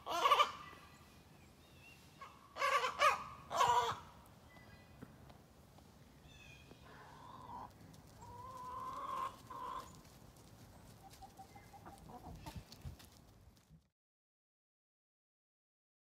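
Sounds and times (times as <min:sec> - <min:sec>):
hens clucking: 0:00.0 - 0:00.8, 0:02.2 - 0:04.2, 0:06.8 - 0:13.1
hens calling: 0:00.0 - 0:00.9, 0:02.2 - 0:04.2, 0:06.3 - 0:12.8.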